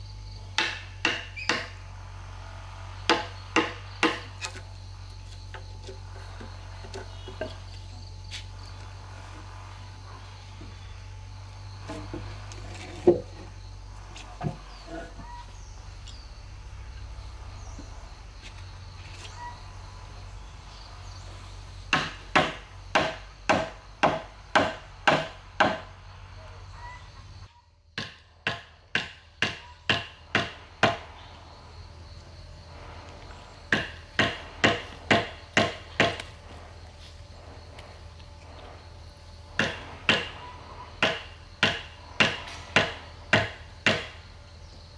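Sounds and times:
tool striking wood: 0:00.5 - 0:01.8, 0:03.1 - 0:04.6, 0:12.9 - 0:13.5, 0:21.9 - 0:25.9, 0:28.0 - 0:31.1, 0:33.7 - 0:36.3, 0:39.6 - 0:40.4, 0:41.0 - 0:44.2.

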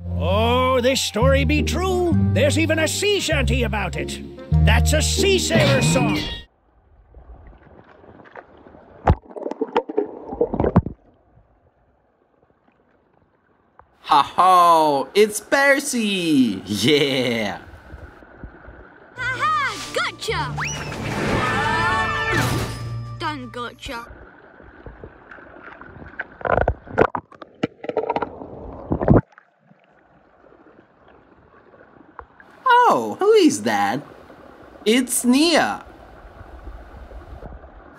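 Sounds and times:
water splashing: 0:07.0 - 0:11.4, 0:15.6 - 0:22.8, 0:24.0 - 0:37.9
faint water lapping: 0:24.0 - 0:26.9, 0:29.4 - 0:37.9.

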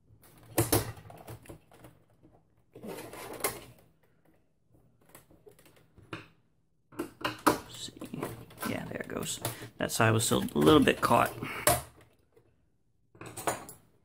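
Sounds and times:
plastic scraping: 0:00.2 - 0:04.2, 0:07.1 - 0:12.5.

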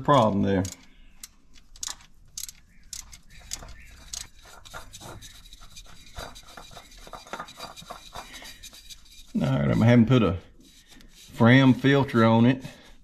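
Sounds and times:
oil filter turned by hand: 0:00.0 - 0:09.4
socket ratchet clicking: 0:00.6 - 0:04.4.

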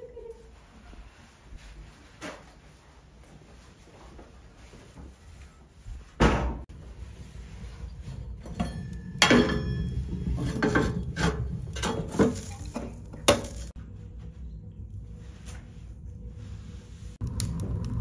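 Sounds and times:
metal lid clanking and scraping: 0:07.9 - 0:13.7.

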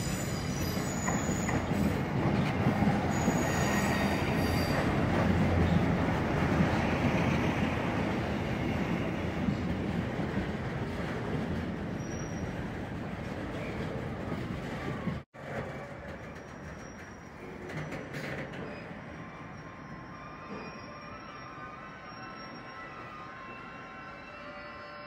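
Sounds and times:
faint wheel squeal: 0:00.0 - 0:01.7, 0:03.1 - 0:04.9, 0:12.0 - 0:12.6, 0:14.8 - 0:25.0
train wheels rumbling on rails: 0:00.0 - 0:19.4.

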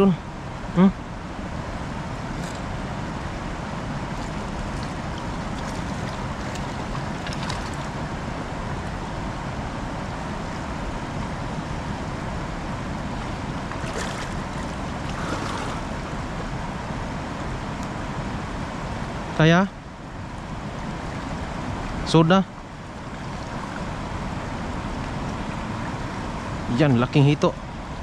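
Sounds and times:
hands splashing shallow water: 0:04.1 - 0:08.0, 0:13.8 - 0:15.9.

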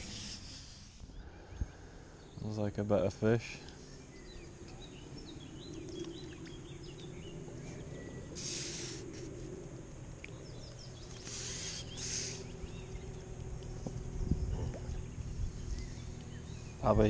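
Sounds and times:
short hissing bursts: 0:00.0 - 0:01.1, 0:08.4 - 0:09.5, 0:11.1 - 0:12.6
small birds chirping: 0:00.0 - 0:17.0.

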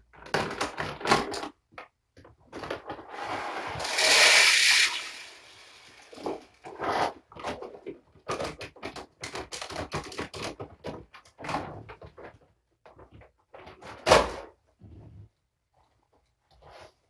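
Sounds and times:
small objects clicking and rattling: 0:03.8 - 0:06.7.

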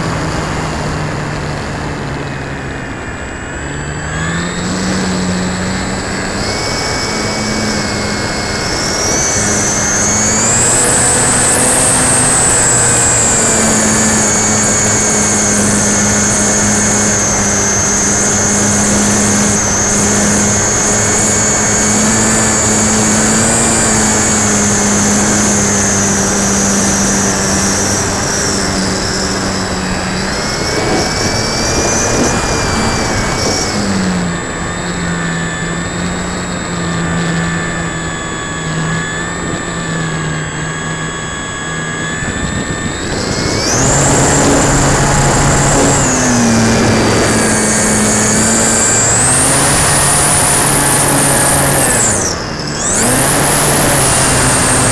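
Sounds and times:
model plane motor whining: 0:00.0 - 0:54.9
air rushing past: 0:42.2 - 0:50.2.

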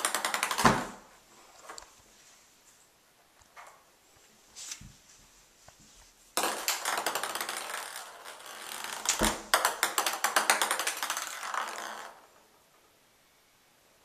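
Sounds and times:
ping pong ball bouncing in bathtub: 0:00.0 - 0:01.0, 0:06.4 - 0:12.2.

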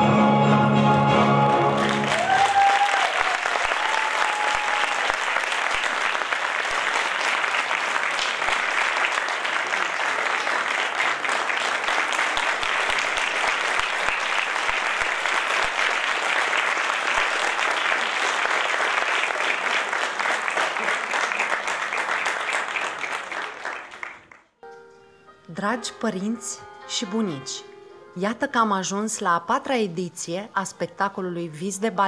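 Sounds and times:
audience applauding: 0:01.2 - 0:24.5.

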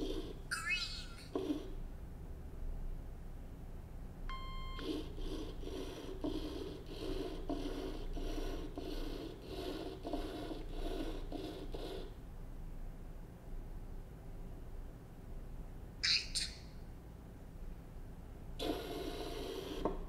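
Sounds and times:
small motors pulsing: 0:04.8 - 0:12.1.

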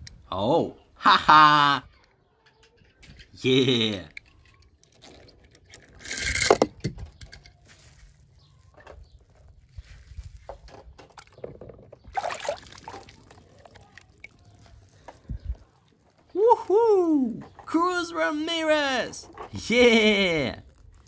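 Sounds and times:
toys clicking and knocking: 0:01.9 - 0:07.6
toy cars splashing into water: 0:12.1 - 0:15.0.

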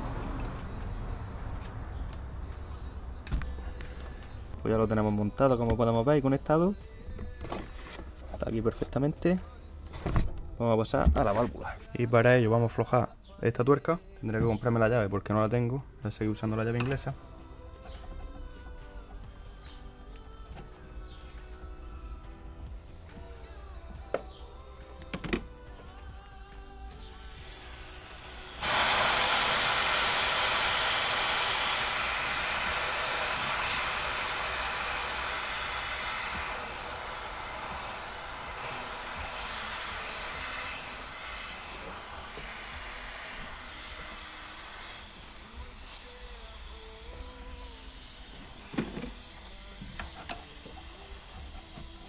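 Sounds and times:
refrigerant gas hissing: 0:26.9 - 0:52.0.

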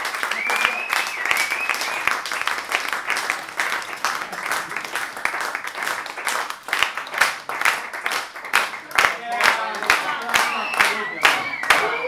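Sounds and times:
audience applauding: 0:00.0 - 0:12.0
high steady whistle: 0:00.3 - 0:02.1, 0:10.4 - 0:12.0.

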